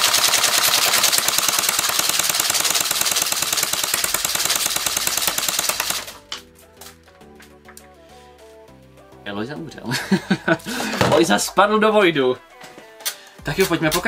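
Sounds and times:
airsoft gun rapid burst: 0:00.0 - 0:06.3.

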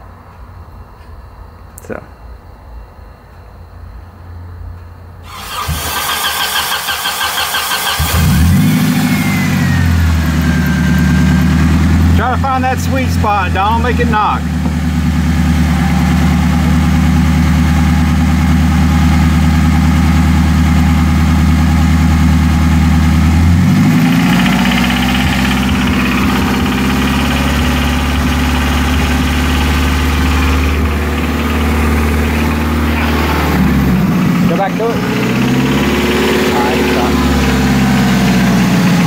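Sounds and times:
car engine running with knock: 0:08.0 - 0:13.0, 0:13.6 - 0:39.0.

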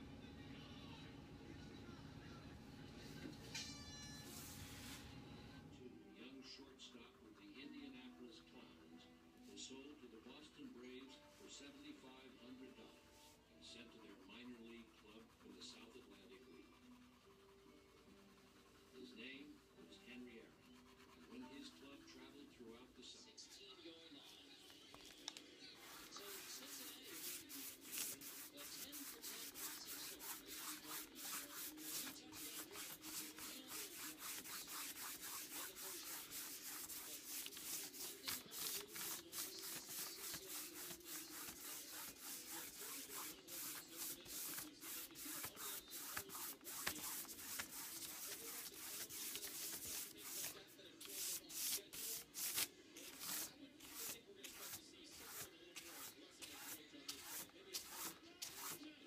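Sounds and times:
paintbrush scrubbing a board: 0:13.8 - 0:19.6, 0:25.8 - 0:58.8.

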